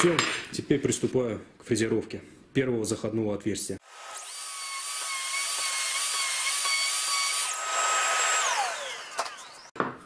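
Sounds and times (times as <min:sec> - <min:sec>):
router whining: 0:03.8 - 0:09.8
router winding down: 0:03.9 - 0:09.7.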